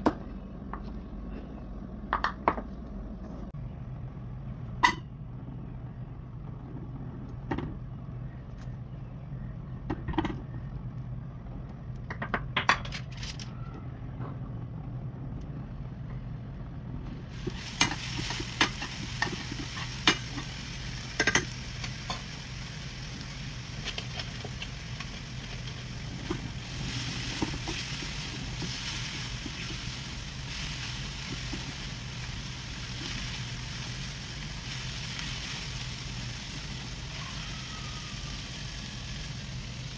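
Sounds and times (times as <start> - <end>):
steady low hum: 0.0 - 12.7, 13.4 - 39.9
food sizzling in a frying pan: 17.3 - 39.9.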